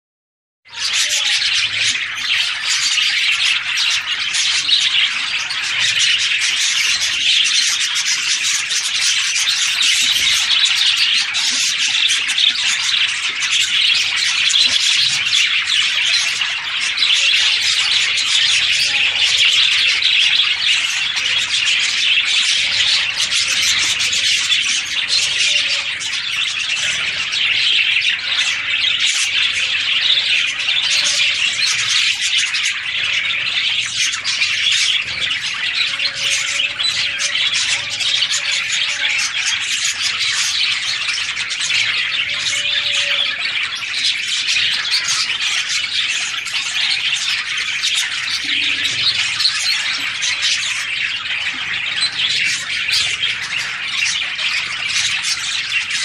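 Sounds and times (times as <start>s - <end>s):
budgerigars chattering: 0.7s - 56.0s.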